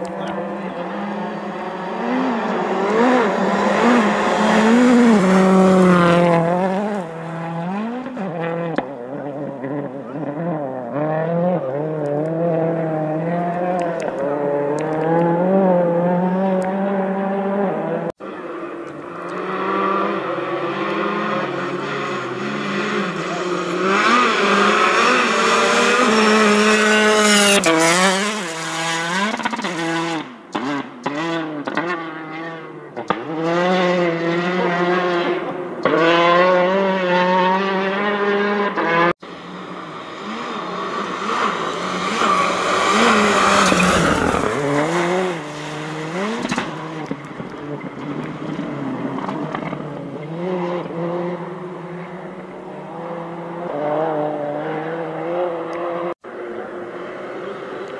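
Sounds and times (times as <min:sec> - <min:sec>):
car passing close: 0:00.0 - 0:57.9
rally car engines revving: 0:00.0 - 0:57.9
exhaust cracks: 0:40.9 - 0:50.2.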